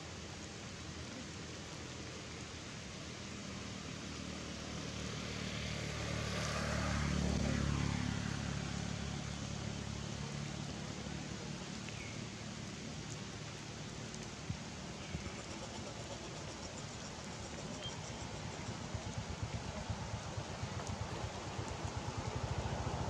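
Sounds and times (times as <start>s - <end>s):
steady outdoor hiss: 0.0s - 23.0s
vehicle passing by: 4.2s - 11.6s, 18.4s - 23.0s
faint ticks: 11.7s - 12.2s, 13.0s - 13.4s, 14.0s - 19.2s, 20.6s - 22.4s.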